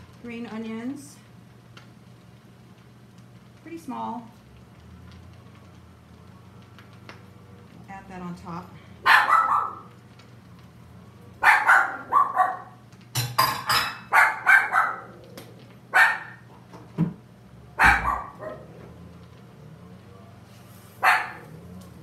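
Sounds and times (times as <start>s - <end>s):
dog barking: 9.0s - 9.9s, 11.4s - 12.8s, 14.0s - 15.2s, 15.9s - 16.4s, 17.8s - 18.7s, 21.0s - 21.6s.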